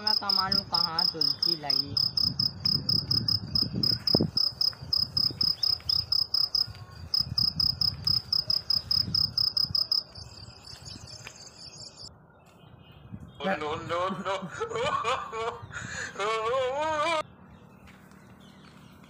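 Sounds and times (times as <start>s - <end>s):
insect chirping: 0.0s - 10.2s.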